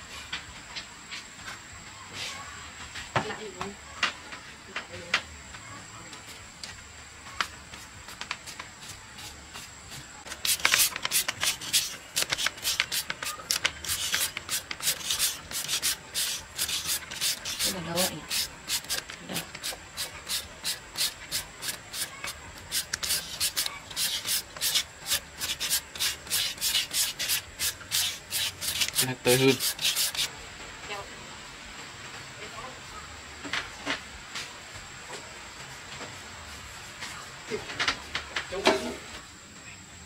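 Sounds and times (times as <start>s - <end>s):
hand tool scraping rough surface: 10.3s - 30.3s.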